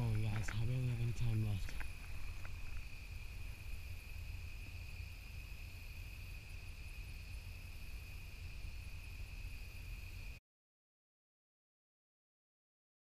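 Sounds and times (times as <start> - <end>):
crickets trilling: 0.0 - 10.4
low microphone rumble: 0.0 - 10.4.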